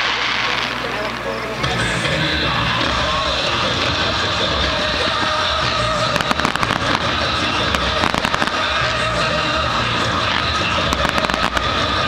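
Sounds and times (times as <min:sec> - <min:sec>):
fireworks crackling: 0:00.0 - 0:12.0
music playing: 0:00.0 - 0:12.0.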